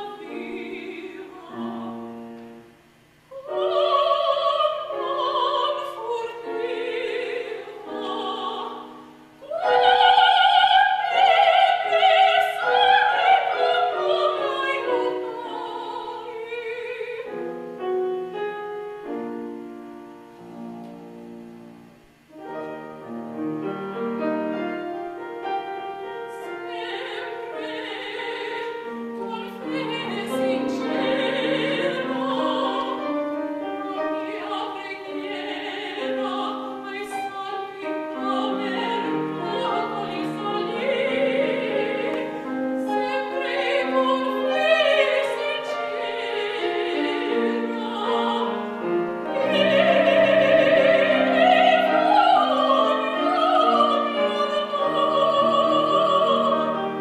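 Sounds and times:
soprano singing opera: 0.0s - 18.4s, 23.6s - 57.0s
piano accompaniment: 0.0s - 57.0s.

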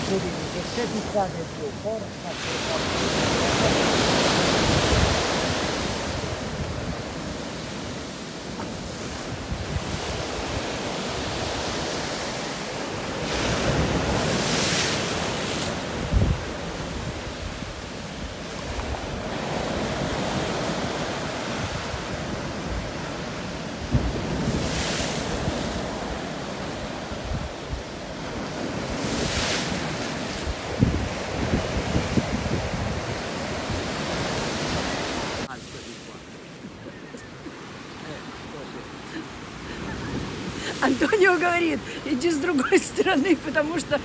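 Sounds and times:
sea waves breaking over rocks: 0.0s - 44.0s
wind buffeting microphone: 2.7s - 35.4s.

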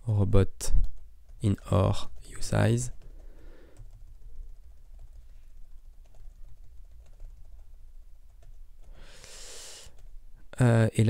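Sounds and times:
typing on a computer keyboard: 0.8s - 9.0s.

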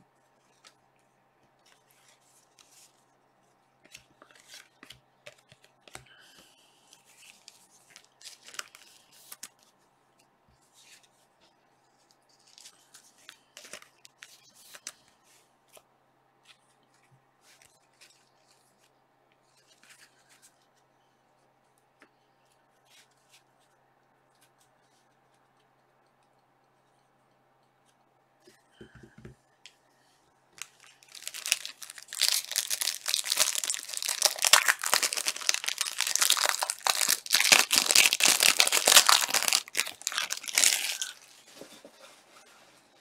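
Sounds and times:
faint steady hum: 0.0s - 43.0s
cards and plastic sleeves rustling: 3.8s - 9.7s, 12.0s - 15.8s, 30.6s - 43.0s.

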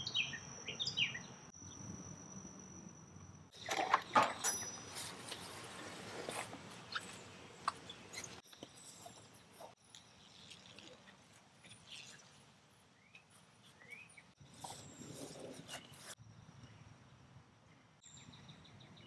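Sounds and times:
trowel scraping soil: 4.9s - 12.5s, 13.2s - 16.2s.

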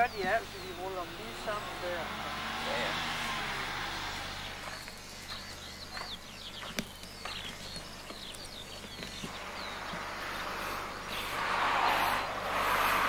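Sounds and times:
songbird chirping and trilling: 0.0s - 13.0s
footsteps on gravel: 4.4s - 11.3s.

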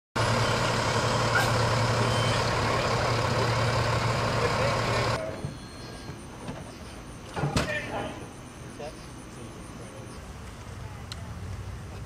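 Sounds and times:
fire engine idling: 0.2s - 5.4s.

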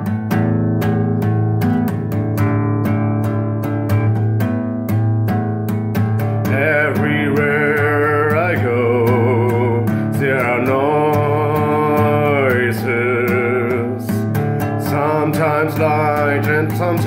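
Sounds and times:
strummed acoustic guitar: 0.0s - 17.0s
held melody with vibrato: 5.4s - 17.0s.

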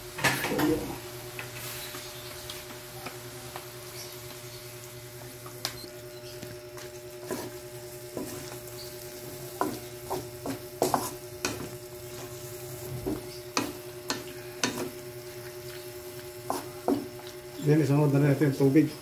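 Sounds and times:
food sizzling: 0.0s - 19.0s
wooden spatula scraping a wok: 6.8s - 17.2s.

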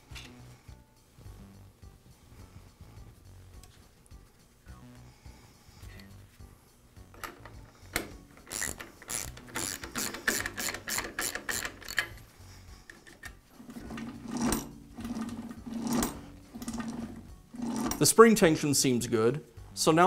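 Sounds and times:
ratcheting driver clicking: 7.2s - 12.2s.

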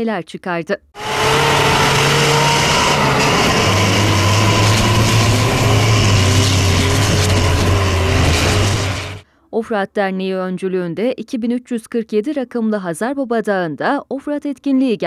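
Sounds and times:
diesel truck engine droning: 1.0s - 9.2s.

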